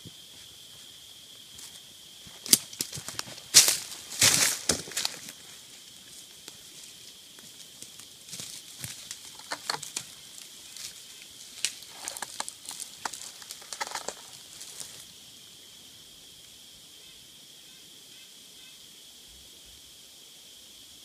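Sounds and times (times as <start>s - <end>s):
footsteps on twigs and leaves: 0.0s - 15.1s.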